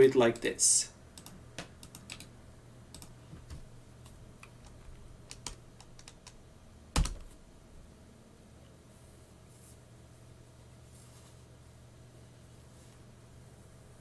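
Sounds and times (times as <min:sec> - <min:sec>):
faint low hum: 0:00.0 - 0:14.0
keyboard and mouse clicks: 0:01.2 - 0:02.3, 0:02.9 - 0:06.4.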